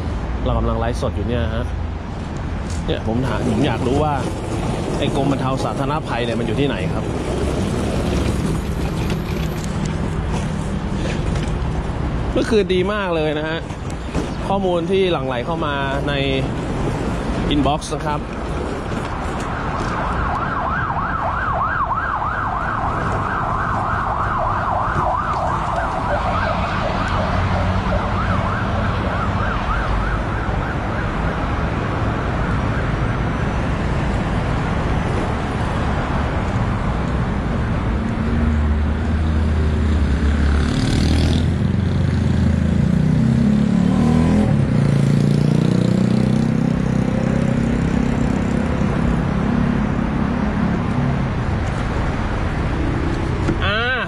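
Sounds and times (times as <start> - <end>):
road traffic: 0.0 - 54.0
siren yelping: 19.6 - 31.3.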